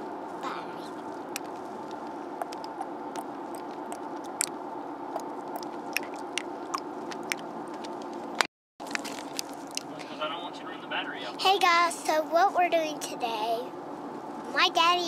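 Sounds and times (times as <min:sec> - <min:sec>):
child's mouth clicks and lip smacks: 0:05.2 - 0:07.9
car cabin hum: 0:09.2 - 0:15.0.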